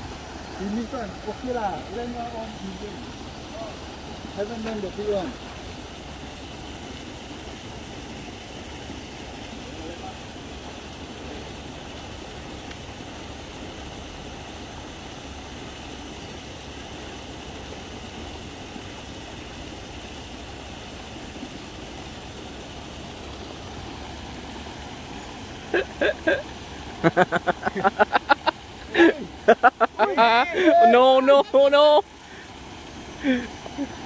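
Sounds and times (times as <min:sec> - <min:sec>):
background hum and hiss: 0:00.0 - 0:34.0
person's voice: 0:30.0 - 0:32.0.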